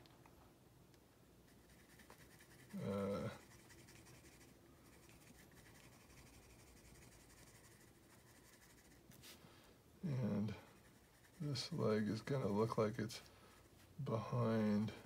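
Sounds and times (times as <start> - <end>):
pencil scratching on paper: 1.5 - 9.0, 10.4 - 13.6.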